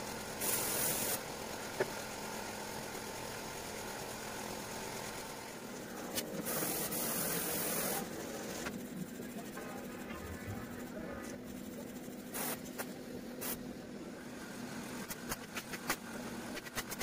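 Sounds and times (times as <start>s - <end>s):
steady machine hum: 0.0s - 17.0s
spray gun hissing: 0.4s - 1.2s, 6.4s - 8.0s, 12.3s - 13.6s.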